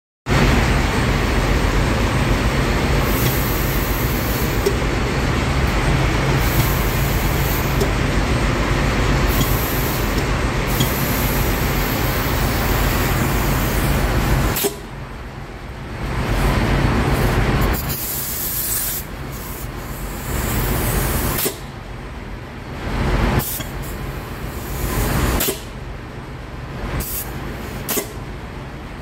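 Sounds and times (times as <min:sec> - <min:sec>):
compressed air hissing: 0:03.0 - 0:04.8, 0:06.3 - 0:07.9, 0:09.3 - 0:14.8, 0:17.7 - 0:21.6, 0:27.0 - 0:28.1.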